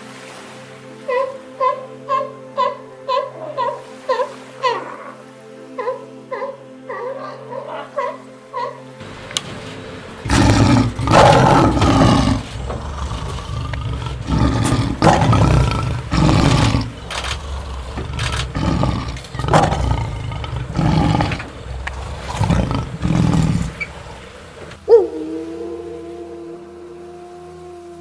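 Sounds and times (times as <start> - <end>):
lion roaring: 10.1 - 24.8.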